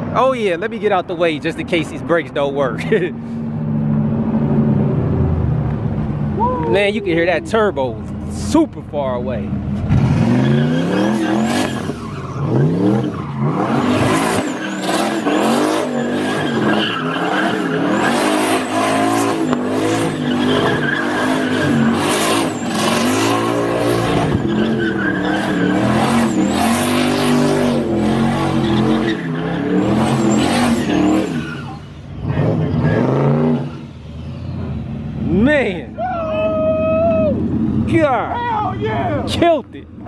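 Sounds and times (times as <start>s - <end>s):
car engine revving hard: 9.8s - 35.6s
tyres squealing on asphalt: 10.1s - 40.0s.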